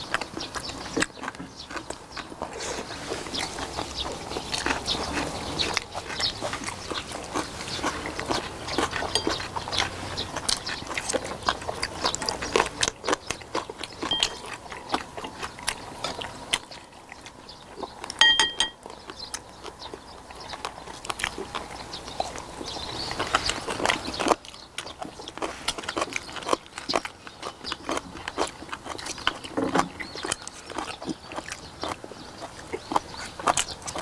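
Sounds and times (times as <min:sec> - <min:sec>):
chewing and lip-smacking: 0:00.0 - 0:34.0.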